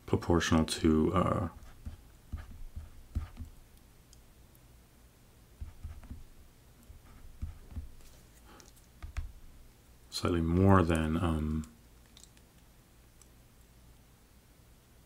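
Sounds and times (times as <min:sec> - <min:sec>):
stylus tapping on tablet screen: 0:01.6 - 0:03.7, 0:05.6 - 0:08.1, 0:09.0 - 0:09.4.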